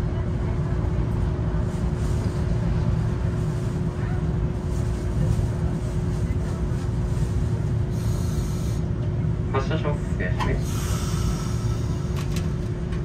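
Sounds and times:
constant hum: 0:00.0 - 0:13.0
streetcar rumbling: 0:00.0 - 0:13.0.

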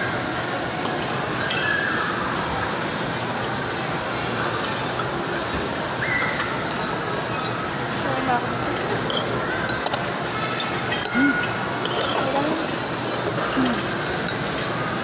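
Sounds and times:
background crowd chatter: 0:00.0 - 0:15.0
cutlery clinking against a bowl: 0:00.4 - 0:02.4, 0:04.5 - 0:05.1, 0:06.3 - 0:14.8.

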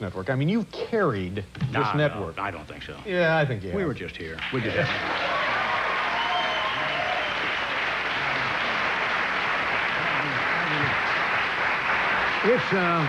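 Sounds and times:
man's voice: 0:01.6 - 0:04.0
audience applauding: 0:04.4 - 0:13.0.

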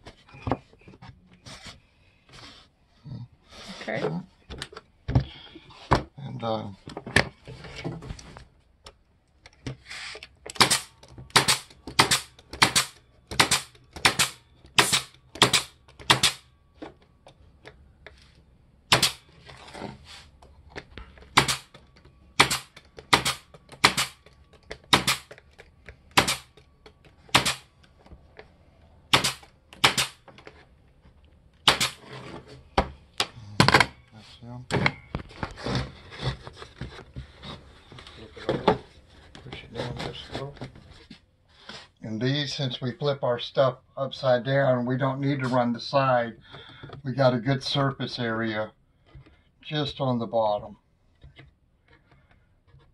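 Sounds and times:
pneumatic stapler shots into wood: 0:10.5 - 0:16.5, 0:18.9 - 0:19.2, 0:21.3 - 0:21.7, 0:22.4 - 0:24.2, 0:24.9 - 0:25.4, 0:26.1 - 0:26.5, 0:27.3 - 0:27.7, 0:29.1 - 0:30.2, 0:31.6 - 0:32.0.

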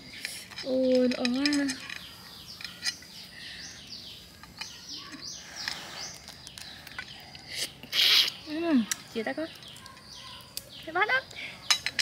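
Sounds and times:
small birds chirping: 0:00.0 - 0:12.0
crayfish shells peeled by hand: 0:04.3 - 0:12.0.

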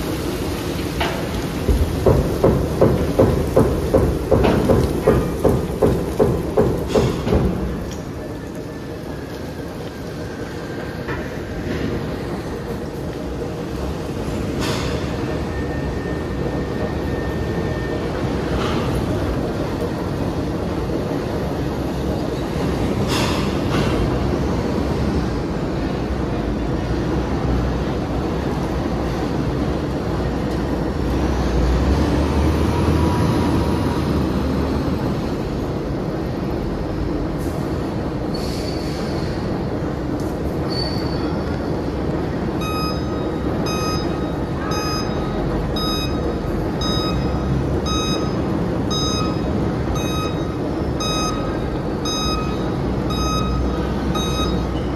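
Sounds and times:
truck reversing alarm beeps: 0:14.6 - 0:19.0, 0:42.5 - 0:54.9.

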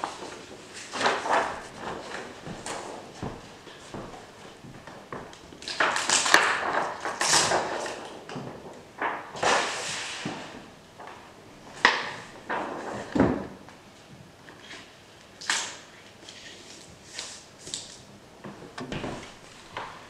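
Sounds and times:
rustling and handling noise: 0:00.0 - 0:20.0.

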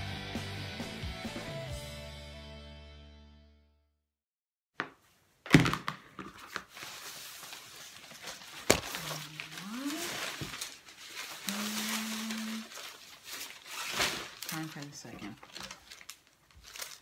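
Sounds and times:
paper strips rustling and crackling: 0:06.2 - 0:17.0.

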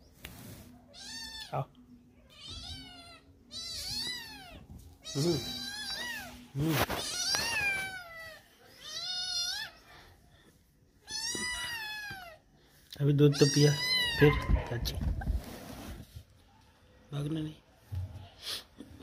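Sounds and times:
kitten meowing: 0:02.3 - 0:09.8, 0:11.0 - 0:12.4, 0:13.3 - 0:14.7.

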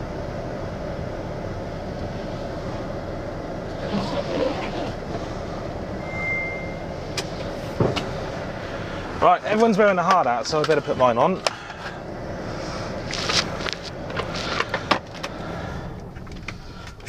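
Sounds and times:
diesel truck engine running: 0:00.0 - 0:17.0
short beep: 0:06.0 - 0:06.9.

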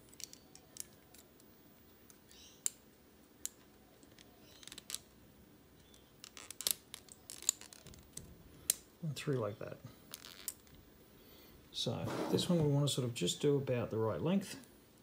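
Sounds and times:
plastic parts clicking: 0:05.8 - 0:08.8.

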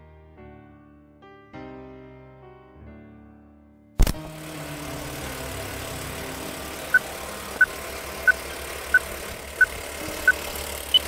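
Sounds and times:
film projector whir: 0:04.0 - 0:11.0.

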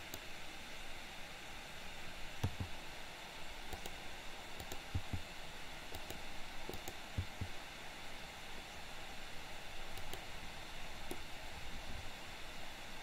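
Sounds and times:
steady background hiss: 0:00.0 - 0:13.0
keyboard key presses: 0:05.9 - 0:07.5.

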